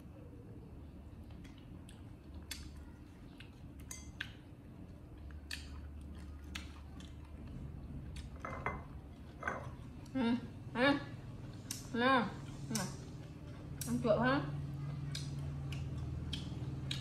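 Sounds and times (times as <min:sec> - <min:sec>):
dishes and utensils clinking: 0:08.4 - 0:09.8.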